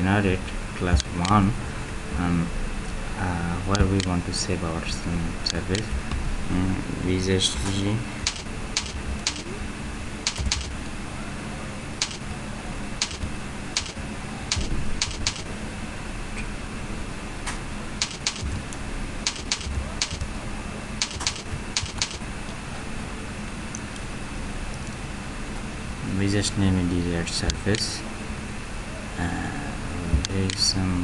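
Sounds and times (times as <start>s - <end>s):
keyboard key clicks: 8.2s - 9.5s, 10.2s - 10.8s, 12.0s - 12.2s, 13.0s - 15.5s, 18.0s - 18.6s, 19.2s - 20.3s, 21.0s - 22.2s.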